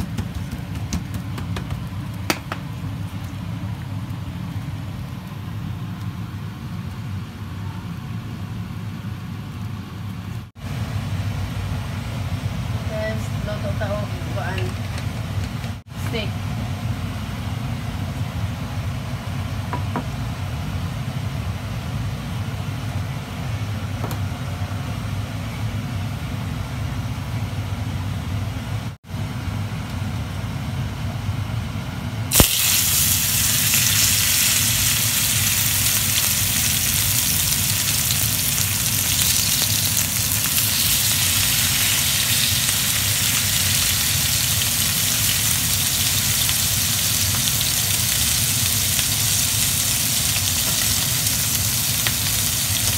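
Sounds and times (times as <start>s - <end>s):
steak sizzling in oil: 32.3s - 52.9s.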